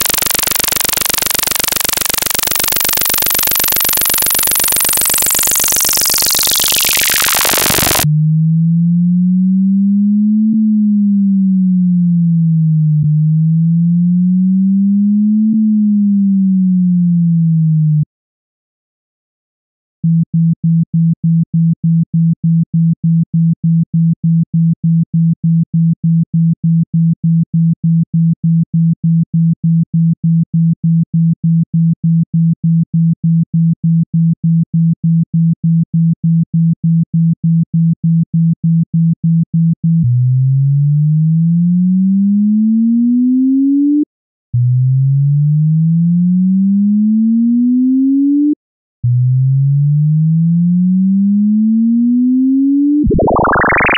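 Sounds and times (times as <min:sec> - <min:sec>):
pulsing low pure tone: 0:00.0 - 0:15.2, 0:53.0 - 0:53.9
rising tone sweeps: 0:53.1 - 0:53.9.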